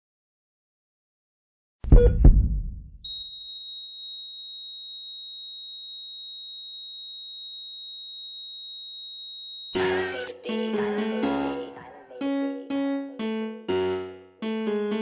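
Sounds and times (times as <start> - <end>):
music: 9.8 - 15.0.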